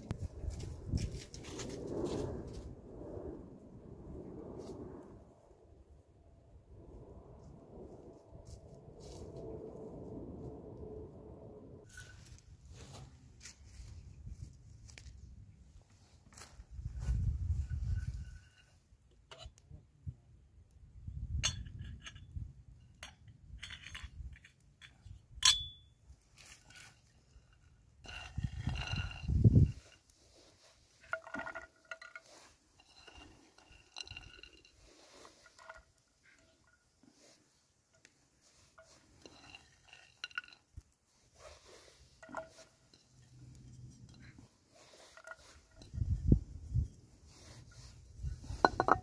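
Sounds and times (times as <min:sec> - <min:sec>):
faint low rumble: 0:00.0 - 0:15.4
small hard objects clinking: 0:28.0 - 0:37.4, 0:38.5 - 0:46.1, 0:48.5 - 0:49.0
light clinks and taps: 0:48.5 - 0:49.0.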